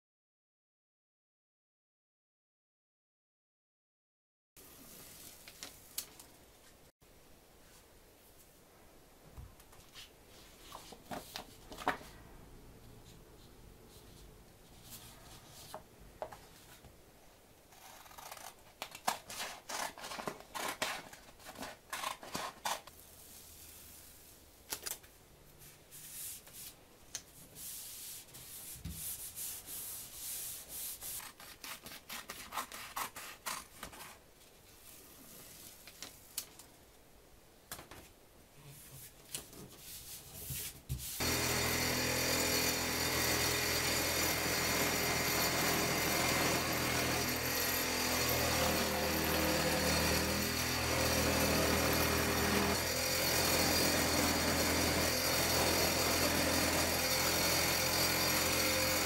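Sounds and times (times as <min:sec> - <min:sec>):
paper rustling: 0:09.8 - 0:12.2.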